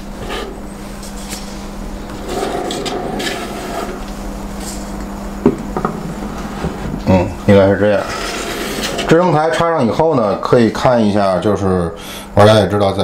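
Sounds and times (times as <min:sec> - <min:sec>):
resin parts scraping together: 0:08.0 - 0:09.2.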